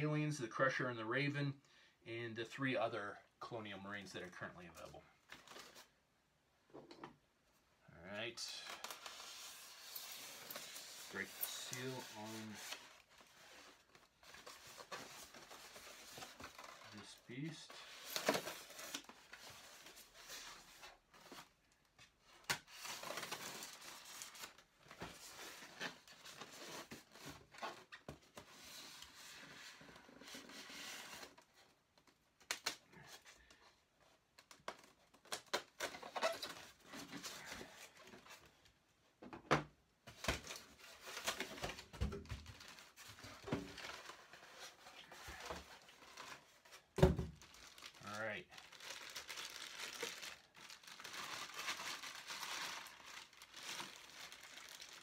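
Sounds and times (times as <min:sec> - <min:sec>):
styrofoam scraping and rubbing: 0:08.9 - 0:13.9
plastic bag rustling: 0:40.7 - 0:55.0.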